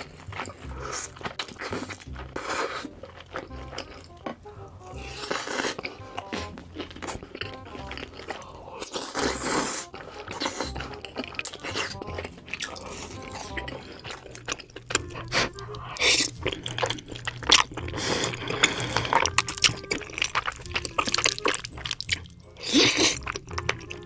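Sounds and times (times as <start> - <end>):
slurping noodles: 0.0 - 3.1, 5.0 - 6.5, 8.0 - 14.3, 15.0 - 21.7, 22.6 - 23.4
background music: 0.0 - 24.0
chewing with wet smacks: 0.0 - 24.0.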